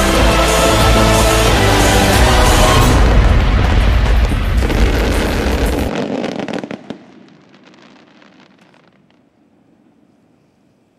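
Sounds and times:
loud music: 0.0 - 5.9
crackling firework stars: 1.9 - 9.8.

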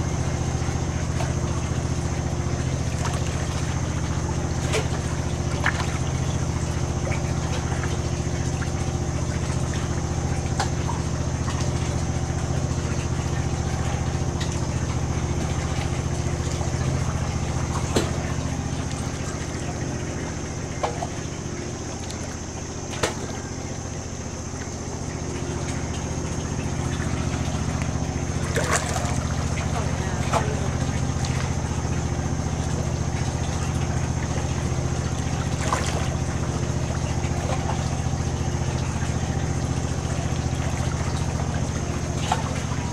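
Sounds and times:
engine idling: 0.0 - 42.9.

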